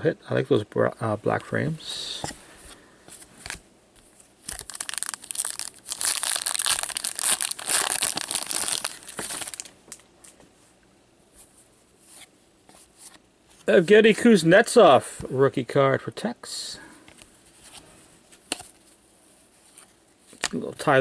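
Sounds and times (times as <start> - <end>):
wrapper tearing and crinkling: 4.4 - 9.8.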